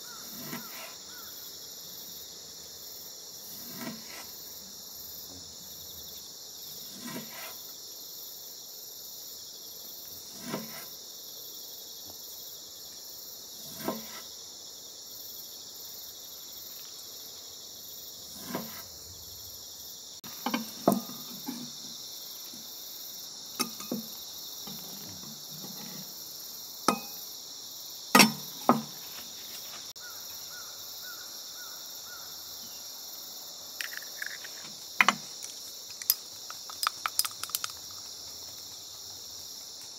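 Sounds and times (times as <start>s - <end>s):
insects chirping: 0.0s - 39.9s.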